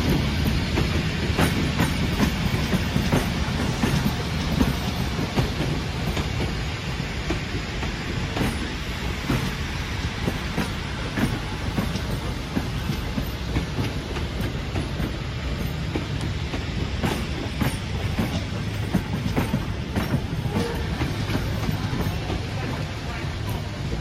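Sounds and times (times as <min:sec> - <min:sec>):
train carriages rumbling: 0:00.0 - 0:24.0
wheels clacking over rail joints: 0:00.0 - 0:24.0.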